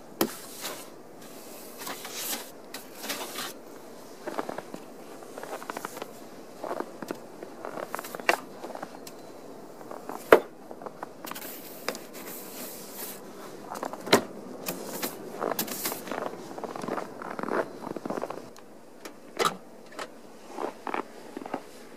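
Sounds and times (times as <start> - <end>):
brush sweeping snow: 0.2 - 7.0, 11.2 - 14.0, 14.6 - 18.5.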